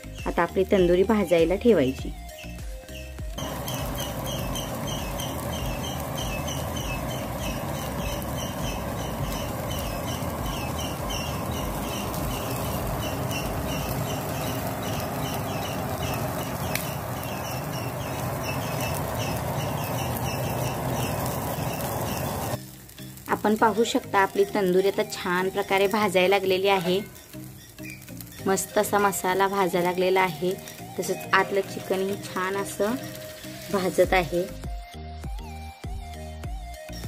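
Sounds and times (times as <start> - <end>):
chicken sizzling on grill: 0.0 - 34.7
bird chirping: 2.2 - 22.6.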